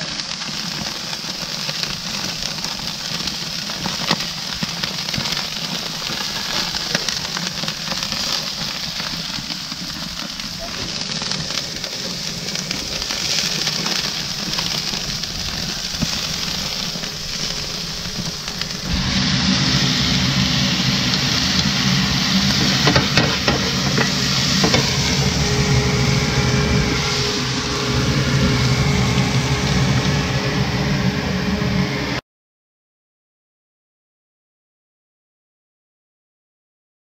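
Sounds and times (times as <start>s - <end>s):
shrimp frying in a skillet: 0.0s - 30.2s
food sizzling on a grill: 0.0s - 30.4s
wooden spoon knocking a pan: 22.6s - 24.9s.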